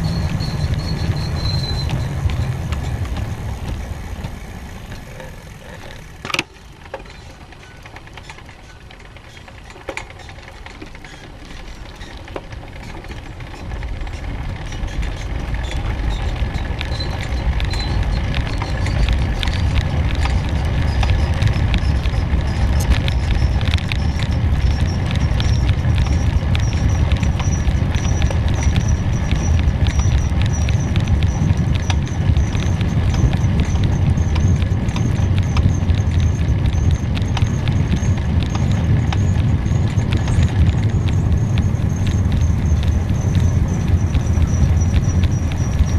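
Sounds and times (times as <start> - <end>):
bike clicking and rattling: 0.0 - 45.9
wind buffeting the microphone: 14.4 - 45.9.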